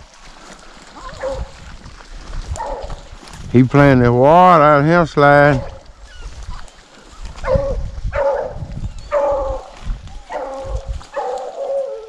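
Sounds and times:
hound baying: 1.0s - 1.6s, 2.5s - 3.1s, 7.2s - 12.0s.

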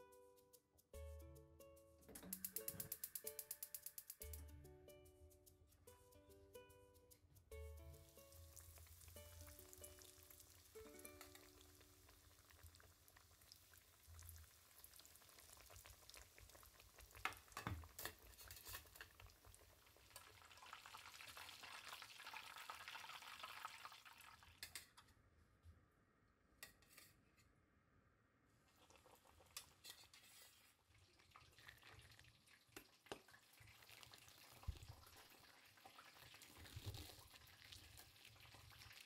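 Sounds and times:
cutlet sizzling in hot oil: 7.9s - 24.8s, 28.9s - 39.0s.

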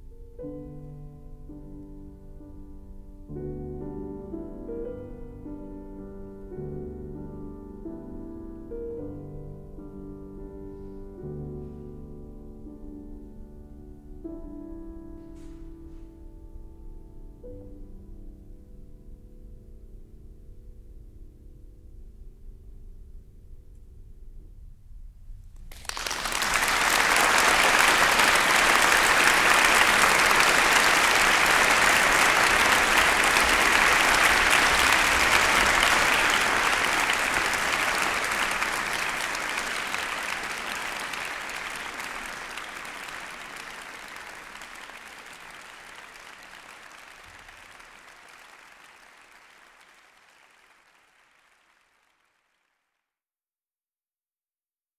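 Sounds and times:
audience applause: 25.7s - 52.6s.

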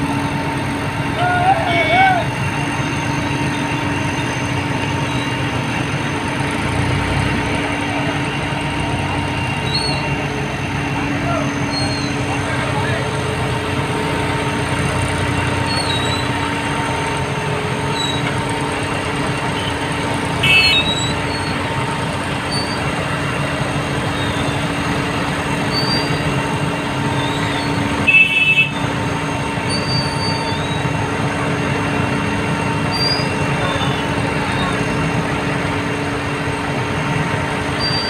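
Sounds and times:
diesel crane engine droning: 0.0s - 38.0s.

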